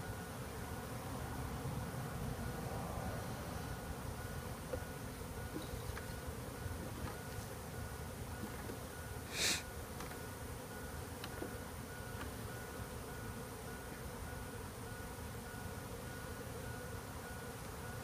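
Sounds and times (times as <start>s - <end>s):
honey bees buzzing: 0.0s - 18.0s
short hiss: 9.3s - 9.6s.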